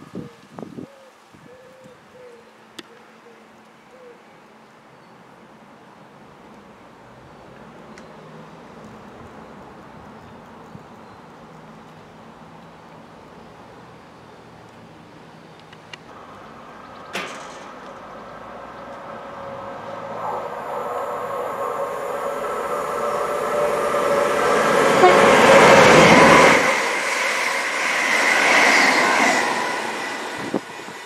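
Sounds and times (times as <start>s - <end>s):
diesel train rushing past: 16.1s - 31.0s.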